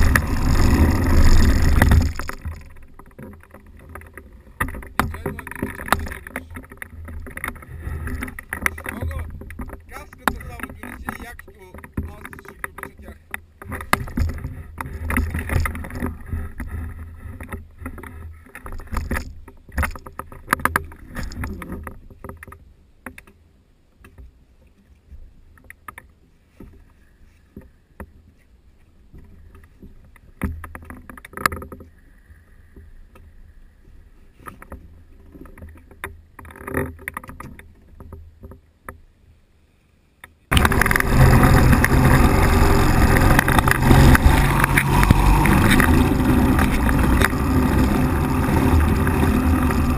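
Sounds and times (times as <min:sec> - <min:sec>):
engine drone: 0:00.0 - 0:13.1, 0:40.5 - 0:49.9
knocks and creaks of frame: 0:00.0 - 0:23.4.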